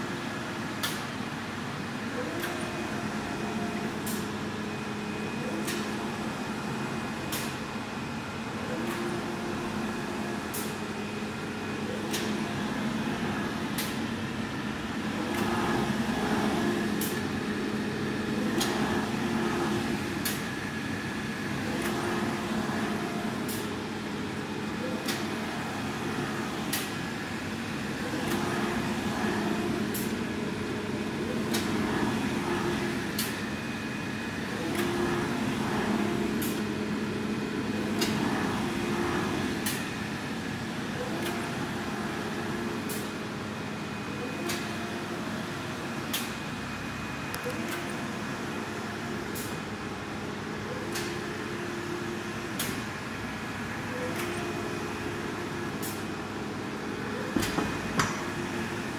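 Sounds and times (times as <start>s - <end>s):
printer tones: 2.1s - 7.6s.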